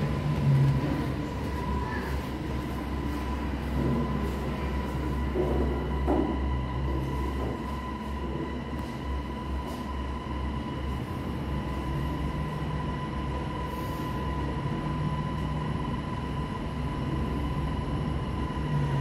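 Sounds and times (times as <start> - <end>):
elevator low rumble: 0.0 - 19.0
high-pitched whine: 0.0 - 19.0.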